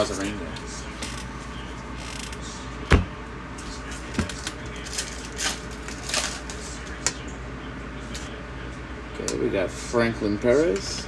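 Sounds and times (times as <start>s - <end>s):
foil wrapper crinkling and tearing: 4.3s - 7.0s.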